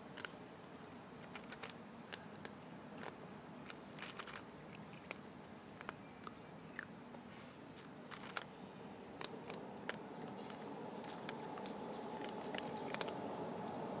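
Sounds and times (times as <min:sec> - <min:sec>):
cat chewing food: 0:07.8 - 0:14.0.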